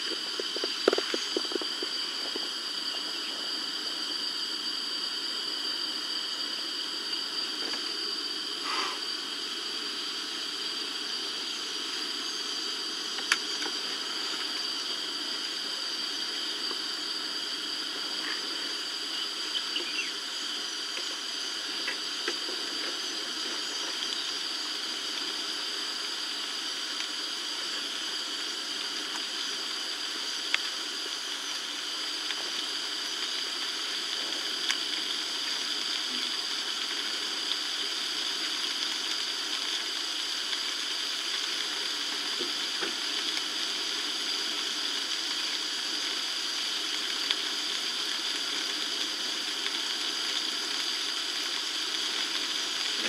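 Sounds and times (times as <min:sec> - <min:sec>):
continuous high-pitched tones: 0:00.0 - 0:53.0
steady hiss: 0:00.0 - 0:53.0.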